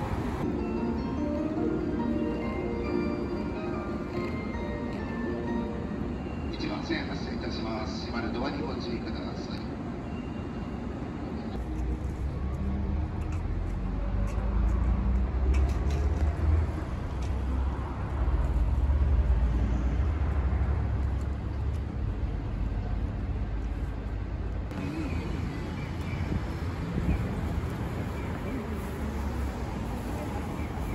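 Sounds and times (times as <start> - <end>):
motor vehicle rumbling: 0.0 - 7.4, 11.1 - 30.9.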